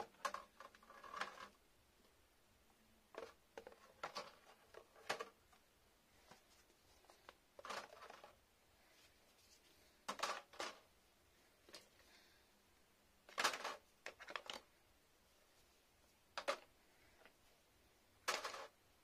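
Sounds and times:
plastic bottles clattering: 0:00.0 - 0:01.6, 0:03.1 - 0:05.5, 0:07.6 - 0:08.4, 0:10.0 - 0:10.9, 0:13.3 - 0:14.7, 0:16.4 - 0:16.7, 0:18.2 - 0:18.8.

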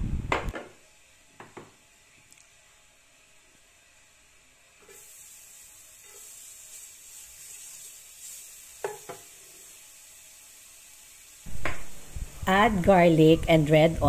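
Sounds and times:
garlic sizzling in oil: 0:03.8 - 0:14.0.

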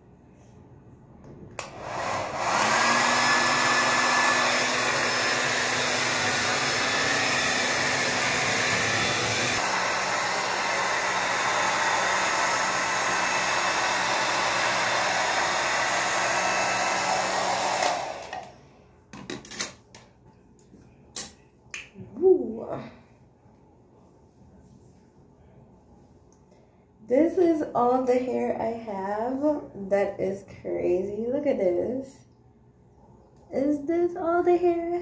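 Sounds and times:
hair dryer blowing: 0:01.6 - 0:18.6.

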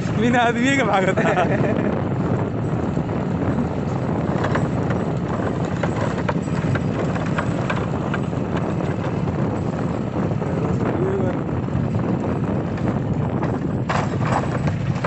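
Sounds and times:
steady rushing noise: 0:00.0 - 0:15.0
horse hoofbeats: 0:03.4 - 0:10.7, 0:12.0 - 0:15.0.

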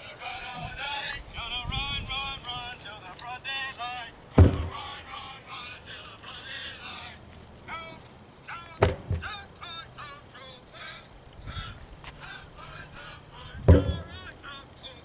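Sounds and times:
tire thudding on asphalt: 0:04.3 - 0:05.1, 0:08.7 - 0:09.5, 0:13.6 - 0:14.3.

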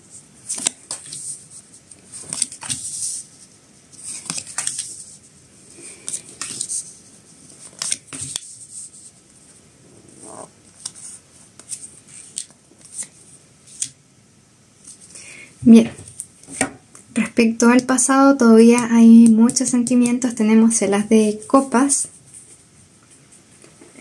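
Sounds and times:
cards snapping and rustling: 0:00.4 - 0:01.2, 0:02.1 - 0:02.9, 0:04.0 - 0:05.0, 0:06.0 - 0:06.8, 0:07.6 - 0:08.5, 0:11.6 - 0:14.0.

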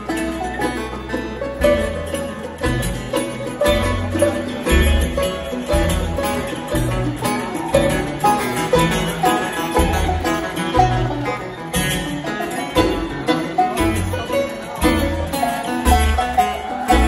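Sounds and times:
acoustic guitars: 0:00.0 - 0:17.0
banjo: 0:00.0 - 0:17.0
upright bass: 0:00.0 - 0:17.0.

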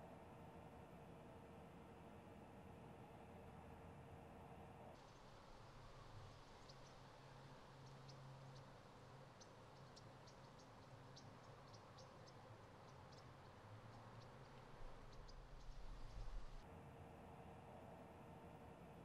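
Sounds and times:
faint high-pitched ticks: 0:09.4 - 0:16.4.

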